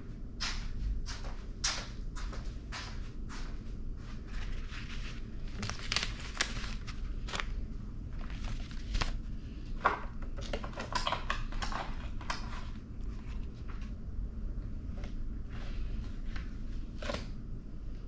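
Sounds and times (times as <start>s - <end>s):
paper rustling and crinkling: 4.1s - 9.3s.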